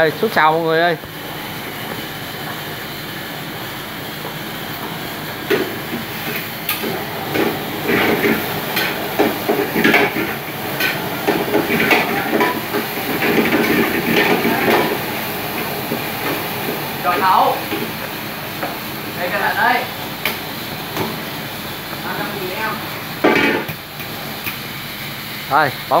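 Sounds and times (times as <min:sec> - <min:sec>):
gas burner hissing: 0:00.0 - 0:26.0.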